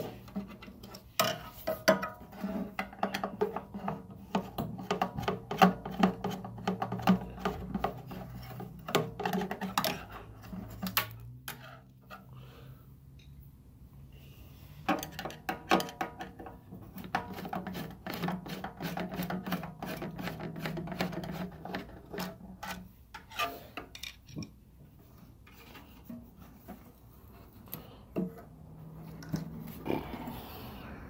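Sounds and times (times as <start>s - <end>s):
tools clicking and scraping: 14.9s - 24.6s.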